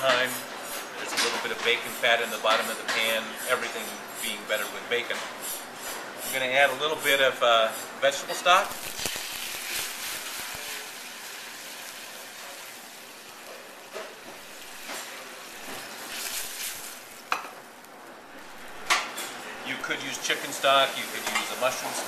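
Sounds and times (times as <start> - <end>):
stock sizzling in hot fat: 0.0 - 22.0.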